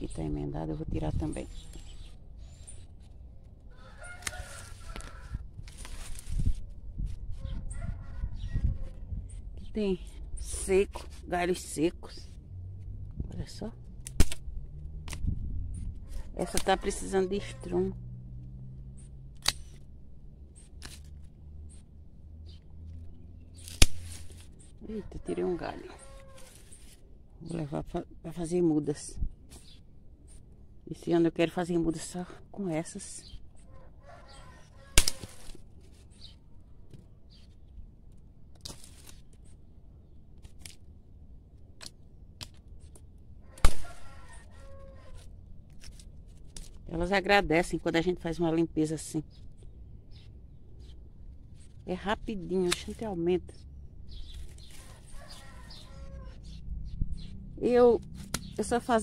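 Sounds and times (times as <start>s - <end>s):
stems and leaves rustling: 0.0s - 59.0s
pruning shears snipping: 4.1s - 6.6s, 14.0s - 15.3s, 16.1s - 17.8s, 19.3s - 19.9s, 20.6s - 21.8s, 23.6s - 27.0s, 34.8s - 35.6s, 38.5s - 39.6s, 40.4s - 40.9s, 41.8s - 43.0s, 43.6s - 44.0s, 45.1s - 46.8s, 52.0s - 53.3s, 58.0s - 59.0s
pruning shears clicking: 14.0s - 15.3s, 19.0s - 19.9s, 20.6s - 21.8s, 23.6s - 24.7s, 35.0s - 35.6s, 52.5s - 53.2s.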